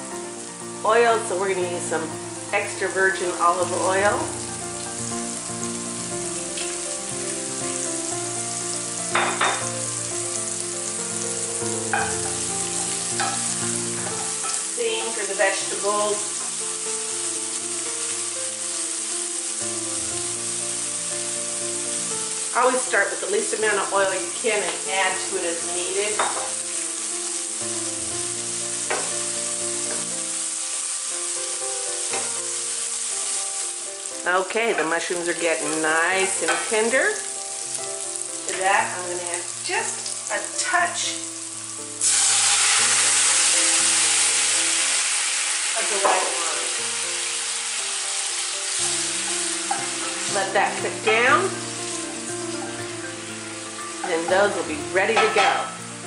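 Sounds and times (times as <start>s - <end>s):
mushrooms sizzling in a skillet: 0.0s - 56.0s
wooden spoon knocking pan: 26.1s - 26.6s
scrape in a skillet: 42.0s - 47.8s.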